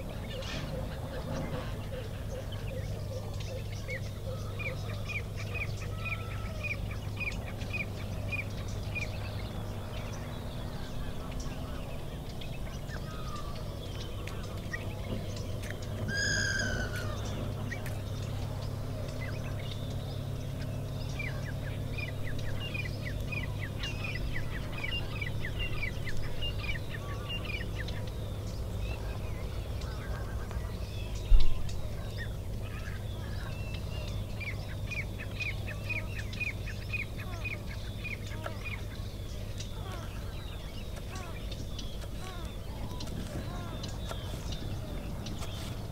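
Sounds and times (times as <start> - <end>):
birds chirping: 0.0 - 45.9
steady low hum: 0.0 - 45.9.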